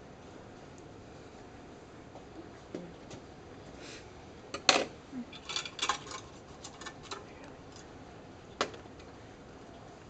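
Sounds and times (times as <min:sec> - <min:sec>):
metal instruments clinking on tray: 0:05.4 - 0:07.2.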